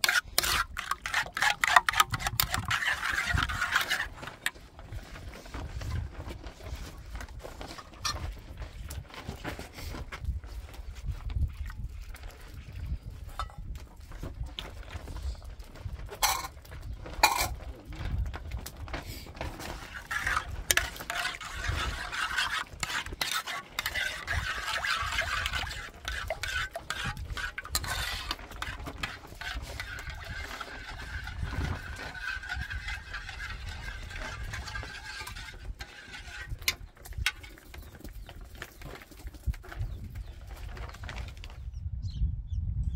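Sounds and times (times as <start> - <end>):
metal spoon scraping a pan: 0.0 - 4.6, 16.2 - 16.6, 17.2 - 17.6, 19.5 - 37.9.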